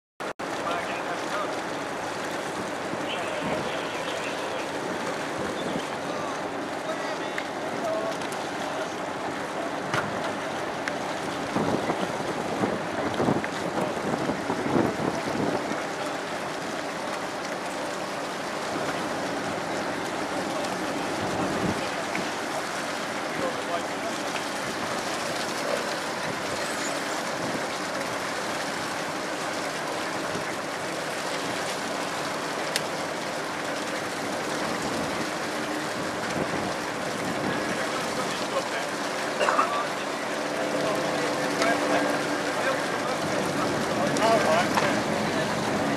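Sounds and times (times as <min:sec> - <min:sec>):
river water: 0:00.2 - 0:45.9
boat engine running: 0:00.3 - 0:45.9
wind buffeting microphone: 0:02.4 - 0:06.8, 0:11.1 - 0:16.7, 0:18.7 - 0:22.4, 0:34.5 - 0:38.4.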